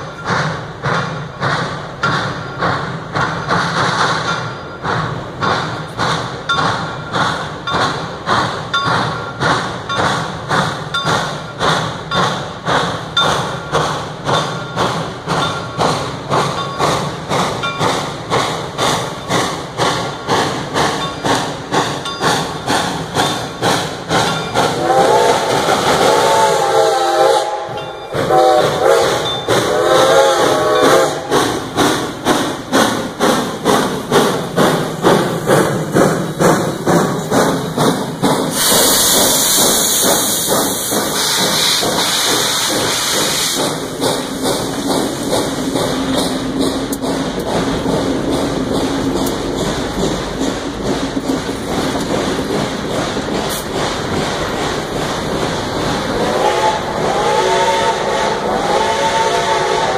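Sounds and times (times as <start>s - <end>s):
loud hiss of steam: 0.0s - 59.9s
steam locomotive chuffing: 0.0s - 59.9s
steam whistle blasts: 24.7s - 31.3s, 56.2s - 59.9s.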